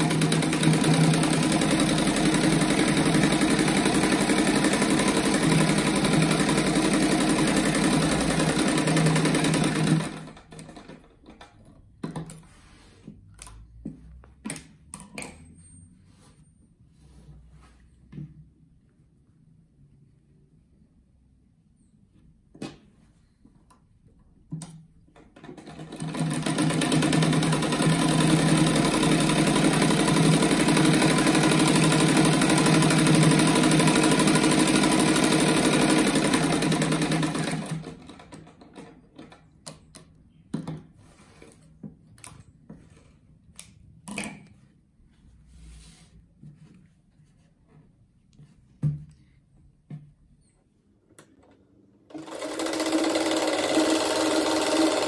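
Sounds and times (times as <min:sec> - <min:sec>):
sewing machine running: 0:00.0 - 0:11.1, 0:25.4 - 0:38.9, 0:52.1 - 0:55.0.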